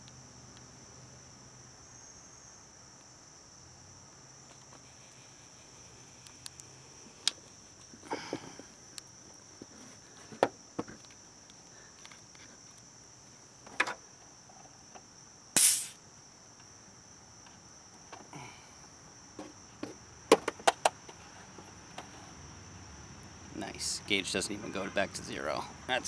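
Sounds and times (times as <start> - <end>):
insects droning: 0.0 - 26.0
loud burst of noise: 15.6 - 16.0.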